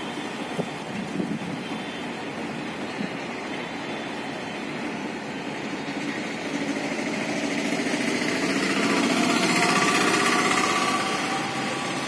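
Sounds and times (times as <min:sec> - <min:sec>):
auto-rickshaw engine driving past: 0:05.4 - 0:12.0.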